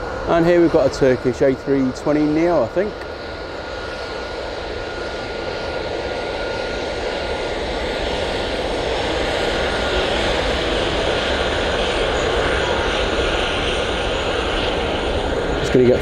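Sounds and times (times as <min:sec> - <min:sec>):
thin steady whine: 0:00.0 - 0:03.8
jet engine rush: 0:00.0 - 0:16.0.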